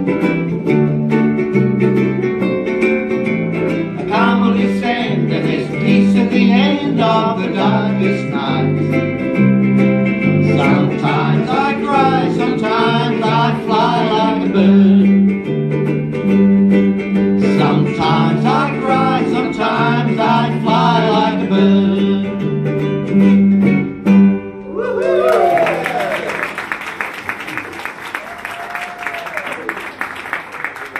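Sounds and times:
ukuleles strumming: 0:00.0 - 0:30.8
people singing with vibrato: 0:04.0 - 0:09.0, 0:10.4 - 0:15.3, 0:17.3 - 0:22.5.

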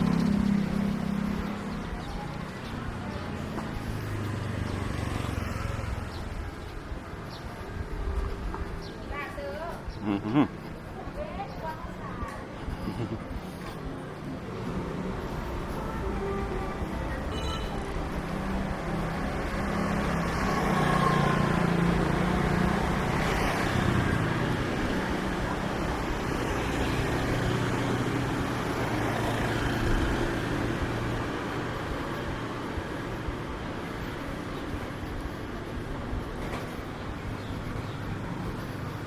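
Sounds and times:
vehicle engine running: 0:00.0 - 0:06.3
road noise hum: 0:00.0 - 0:39.0.

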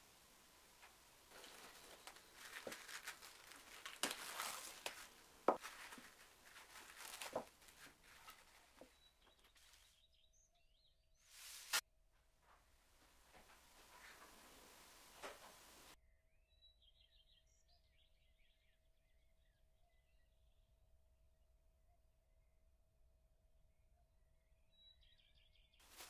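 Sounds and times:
cling film crinkling: 0:00.8 - 0:10.0.

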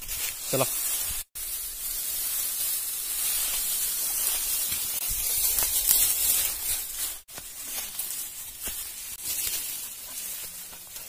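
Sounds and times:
rustling of dry grass: 0:00.0 - 0:11.0
steady hiss: 0:00.0 - 0:11.0.

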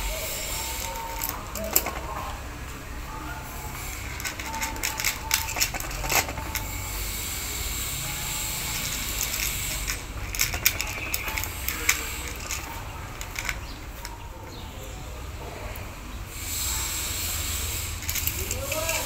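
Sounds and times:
cat crunching kibble: 0:03.8 - 0:06.9, 0:08.1 - 0:14.3.

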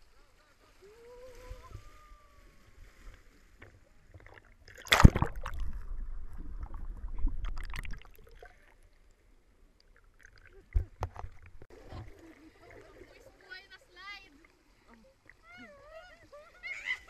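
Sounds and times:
loud splash into water: 0:04.2 - 0:08.5.

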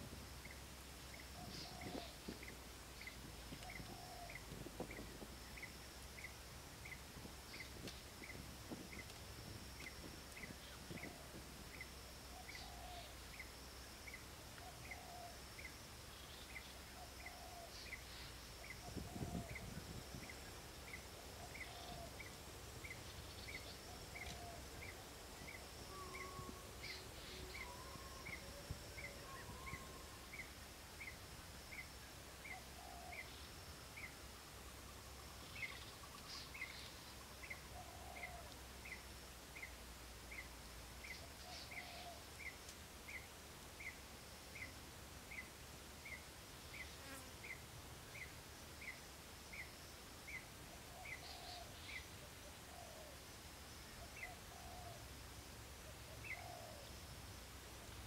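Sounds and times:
high insect drone: 0:00.0 - 0:58.0
bird calls: 0:00.4 - 0:09.2, 0:14.1 - 0:31.2, 0:34.8 - 0:39.0, 0:39.6 - 0:43.2, 0:50.3 - 0:53.2, 0:56.0 - 0:57.0.

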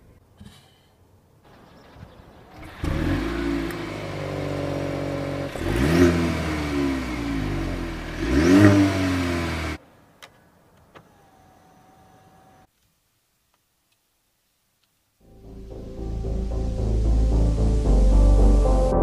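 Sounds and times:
car engine starting and idling: 0:01.5 - 0:12.7
car engine revving: 0:02.4 - 0:09.8.

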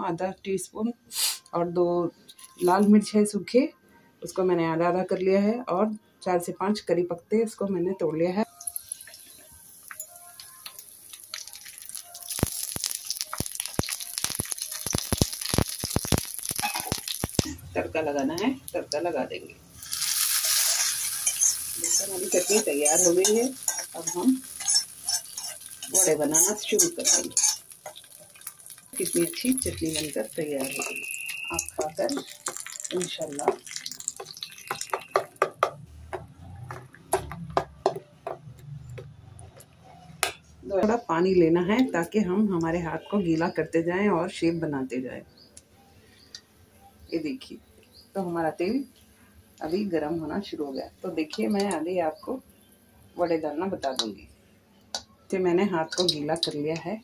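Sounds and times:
spices sizzling in hot oil: 0:08.4 - 0:35.8, 0:47.2 - 0:54.2, 0:55.0 - 0:56.7
sharp pops and crackles: 0:09.9 - 0:17.6, 0:23.0 - 0:38.4
metal spoon clinking in steel bowl: 0:20.3 - 0:29.2.

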